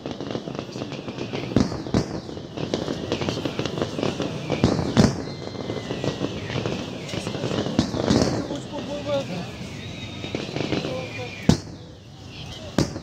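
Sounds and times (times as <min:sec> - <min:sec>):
fireworks bangs and crackles: 0:00.0 - 0:13.0.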